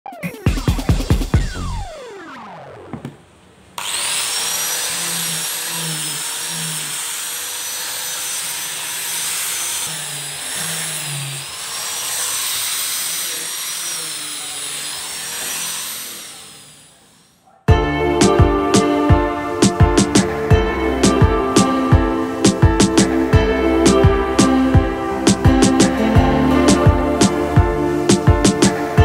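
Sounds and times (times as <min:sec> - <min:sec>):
falling electronic sweep: 0:00.5 - 0:02.9
power tool motor whine: 0:03.8 - 0:17.4.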